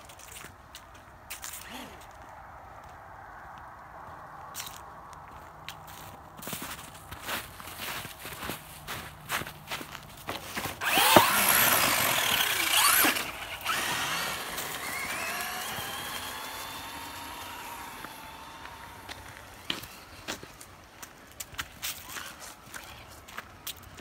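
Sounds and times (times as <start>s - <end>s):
footsteps crunching in snow: 4.0s - 24.0s
tyres spinning: 10.8s - 20.3s
toy truck electric motor revving: 10.8s - 20.5s.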